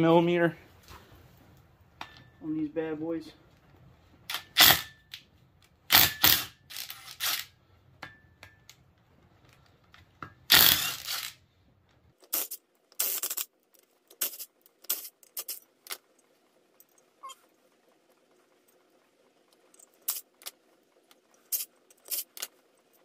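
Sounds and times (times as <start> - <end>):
impact wrench hammering bolts: 4.3 - 5.2, 5.9 - 8.6, 10.2 - 11.4.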